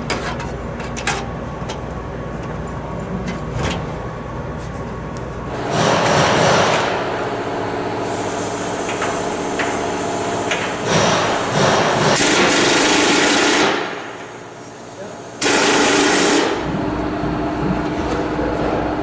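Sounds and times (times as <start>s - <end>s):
steady hum: 0.0s - 19.0s
power tool bursts: 15.4s - 16.6s.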